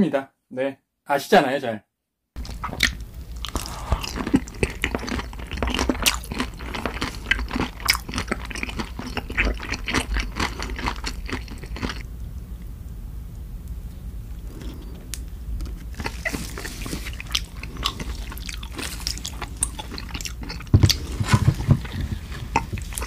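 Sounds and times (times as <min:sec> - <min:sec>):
chewing crunchy fried food: 0:02.4 - 0:12.0, 0:14.4 - 0:15.0, 0:15.6 - 0:23.0.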